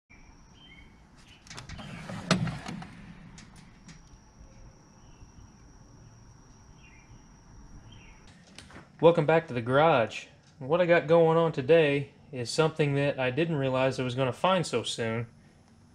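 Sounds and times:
tool chest drawer sliding open: 1.3 - 3.8
drawer clunking against stop: 1.3 - 4.0.

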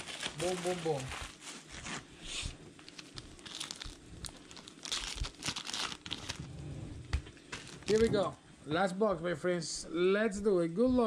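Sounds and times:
plastic wrap crinkling and tearing: 0.0 - 6.5, 7.5 - 8.4.

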